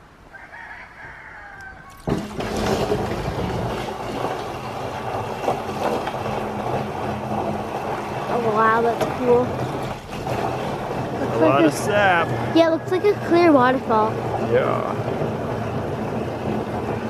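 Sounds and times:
liquid pouring and splashing: 2.0 - 7.0.

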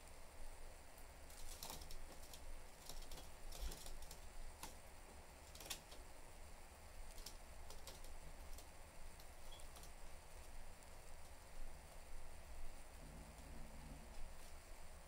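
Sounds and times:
bird beaks and claws clicking: 5.4 - 6.0, 7.1 - 10.0.

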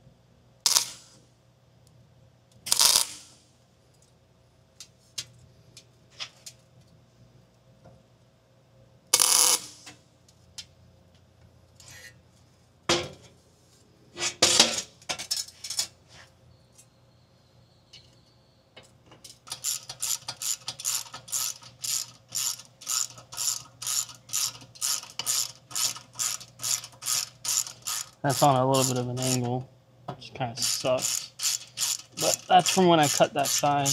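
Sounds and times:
welder arc crackling: 0.7 - 1.2, 2.7 - 3.4, 19.5 - 29.6, 30.6 - 33.9
ratchet wrench clicking: 19.4 - 29.4, 30.6 - 33.9.

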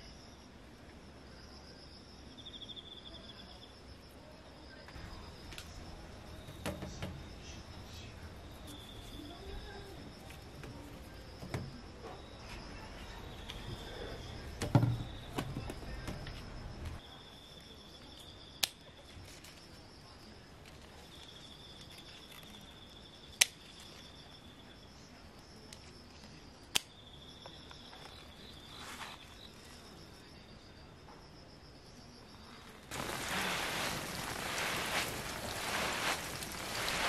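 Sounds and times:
rustling and handling bumps: 5.0 - 7.5, 32.9 - 37.0
insects singing: 26.6 - 37.0.

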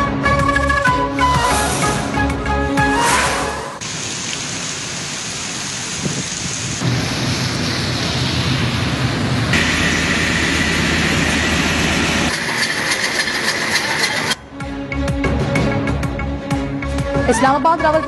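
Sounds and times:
heavy rain falling: 3.8 - 14.4.

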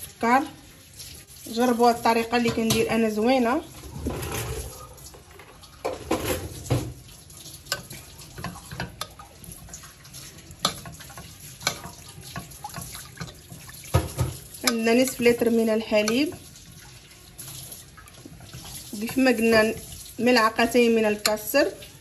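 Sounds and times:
spoon clinking against a pot: 7.7 - 9.9, 10.6 - 16.5.

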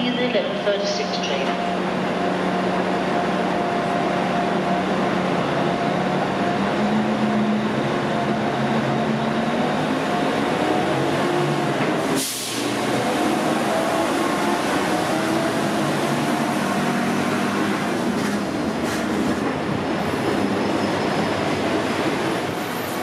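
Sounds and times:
diesel train engine drone: 0.0 - 23.0.

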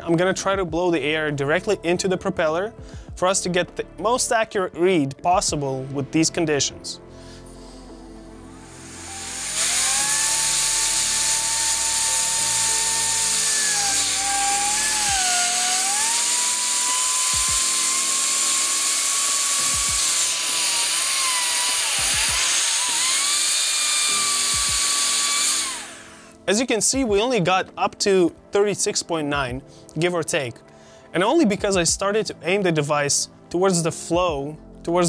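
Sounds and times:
electric air blower whining: 7.4 - 26.6.

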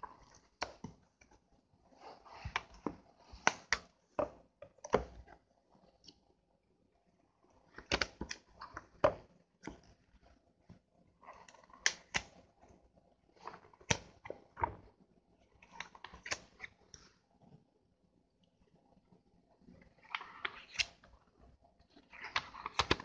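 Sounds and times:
book pages turning: 0.0 - 6.1, 7.6 - 10.4, 11.2 - 14.9, 15.6 - 17.1, 19.8 - 21.2, 22.0 - 23.0.

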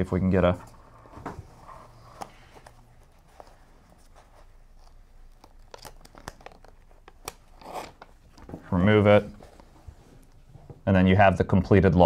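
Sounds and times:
tape peeling and crinkling: 1.7 - 8.7.

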